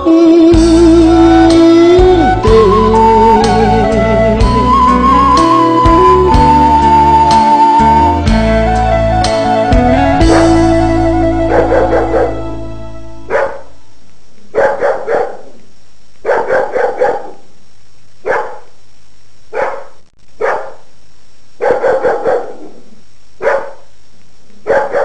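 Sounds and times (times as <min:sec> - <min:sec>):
song: 0:00.0 - 0:13.3
dog barking: 0:10.3 - 0:10.6, 0:11.5 - 0:12.4, 0:13.3 - 0:13.8, 0:14.5 - 0:15.6, 0:16.2 - 0:17.5, 0:18.2 - 0:18.7, 0:19.5 - 0:20.9, 0:21.6 - 0:23.9, 0:24.6 - 0:25.0.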